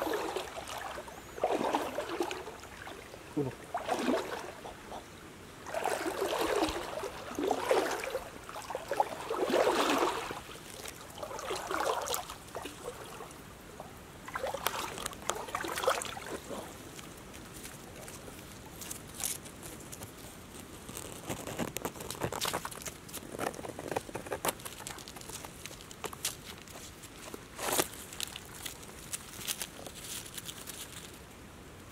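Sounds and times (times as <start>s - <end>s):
stream water sloshing: 0.0s - 31.1s
light ticks and rustles: 10.5s - 11.4s, 14.3s - 31.4s.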